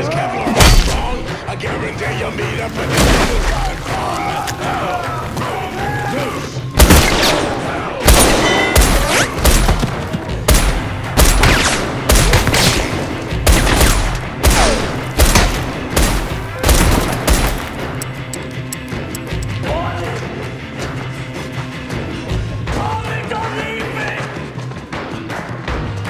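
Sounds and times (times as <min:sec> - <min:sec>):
gunshots: 0:00.5 - 0:04.4, 0:06.8 - 0:18.0.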